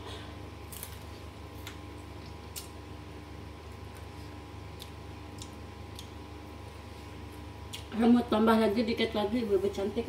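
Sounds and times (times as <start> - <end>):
steady low hum: 0.0 - 10.0
crisp clicks of eating: 0.7 - 2.8, 3.7 - 6.2.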